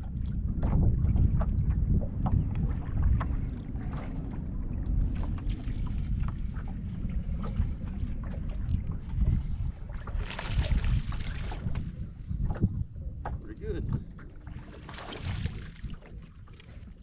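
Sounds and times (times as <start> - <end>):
water splashing against boat hull: 0.0 - 17.0
wind buffeting microphone: 0.0 - 17.0.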